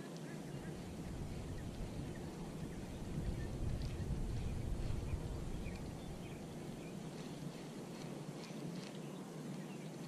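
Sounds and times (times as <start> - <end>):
bird chirps: 0.0 - 7.6
low rumble: 0.5 - 7.2.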